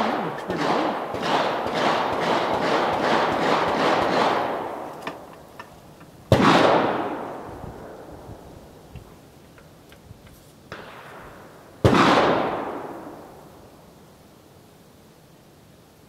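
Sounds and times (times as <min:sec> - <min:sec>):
rifle shots echoing: 0:00.0 - 0:05.3, 0:06.3 - 0:08.1, 0:10.7 - 0:13.4.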